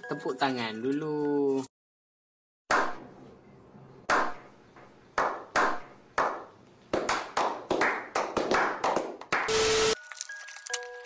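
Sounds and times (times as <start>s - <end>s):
group slow clapping: 5.2s - 9.5s.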